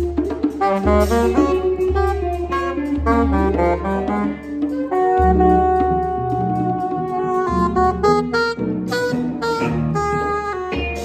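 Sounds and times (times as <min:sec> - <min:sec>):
saxophone playing runs: 0:00.0 - 0:11.0.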